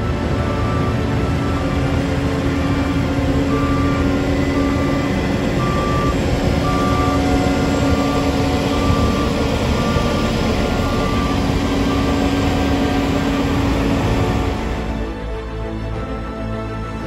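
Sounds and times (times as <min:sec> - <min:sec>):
heavy diesel engines running: 0:00.0 - 0:17.0
backup alarm beeping: 0:02.8 - 0:14.8.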